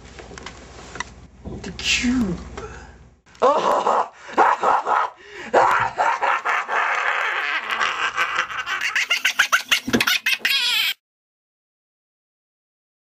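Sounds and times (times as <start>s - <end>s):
person laughing loudly: 3.4s - 11.0s.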